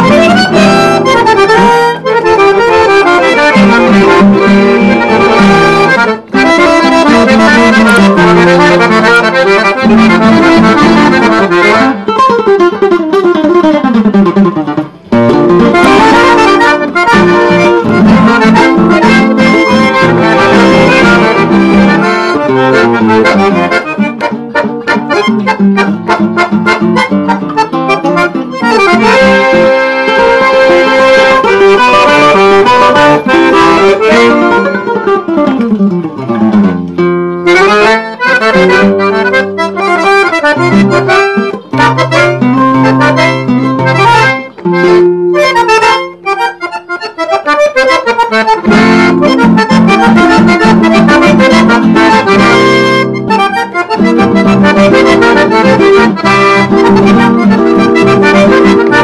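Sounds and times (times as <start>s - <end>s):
accordion playing: 0.0s - 59.0s
plucked guitar: 0.0s - 59.0s.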